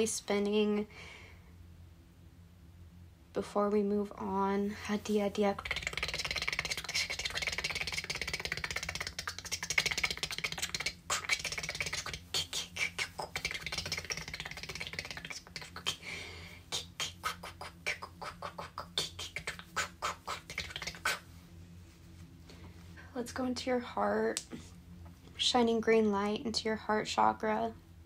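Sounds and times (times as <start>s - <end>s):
rapid tongue clicks: 5.5s - 21.3s
breathy hissing: 10.6s - 21.3s.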